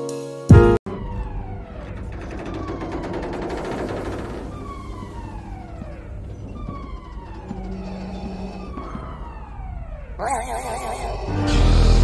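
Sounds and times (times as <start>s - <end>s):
siren-like descending wails: 0.9s - 12.0s.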